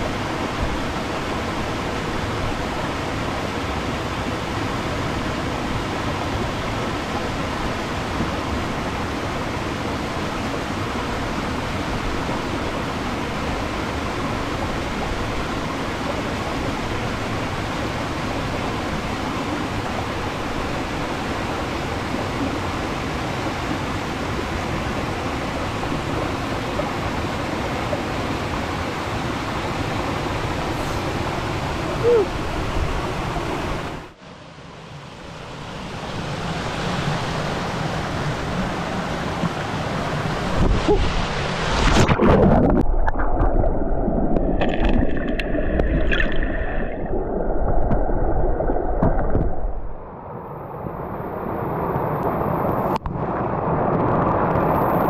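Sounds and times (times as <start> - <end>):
waterfall rushing: 19.6 - 34.2
water churning against microphone: 24.4 - 34.1, 37.4 - 50.0.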